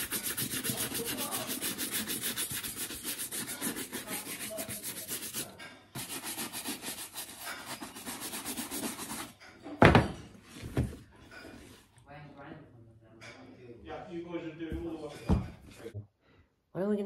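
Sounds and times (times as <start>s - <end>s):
brushing a leather boot: 0.0s - 9.3s.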